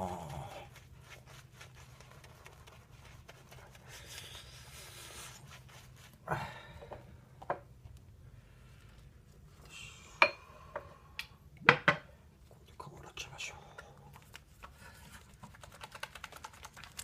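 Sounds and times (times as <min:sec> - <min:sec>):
towel rubbing on face: 0:00.0 - 0:06.3
low steady hum: 0:00.0 - 0:17.0.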